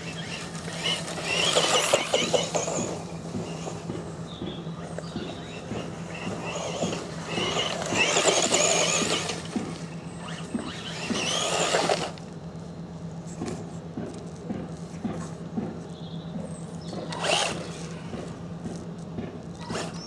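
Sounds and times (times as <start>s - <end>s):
rc car motor and gears whining: 0.0s - 12.4s, 16.7s - 20.0s.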